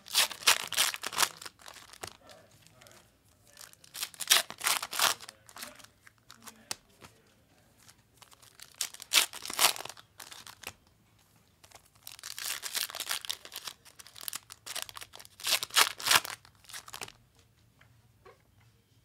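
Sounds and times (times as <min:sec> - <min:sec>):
plastic wrapping tearing: 0:00.0 - 0:02.8, 0:03.5 - 0:06.8, 0:08.2 - 0:10.8, 0:11.6 - 0:17.2.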